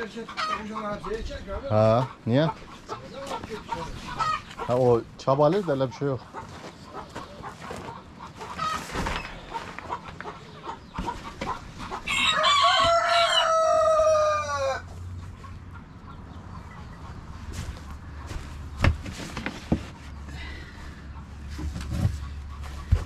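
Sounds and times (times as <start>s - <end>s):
rooster crowing: 12.1s - 14.9s.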